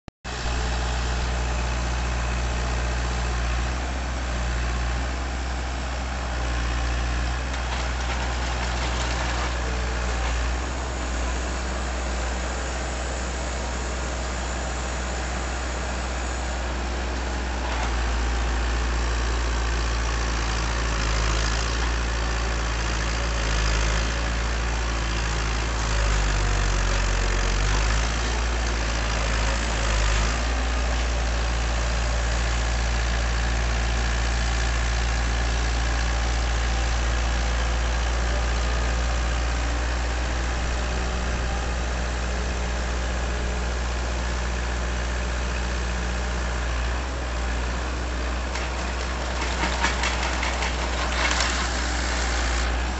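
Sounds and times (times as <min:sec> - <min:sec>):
tractor diesel engine running: 0:00.3 - 0:52.9
auger boring into soil: 0:48.4 - 0:52.9.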